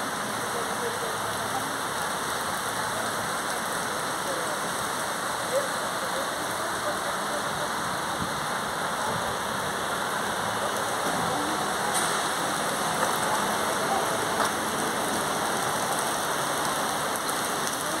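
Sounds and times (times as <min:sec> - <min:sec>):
rain on wet paving: 0:00.0 - 0:18.0
raindrops ticking: 0:09.3 - 0:18.0.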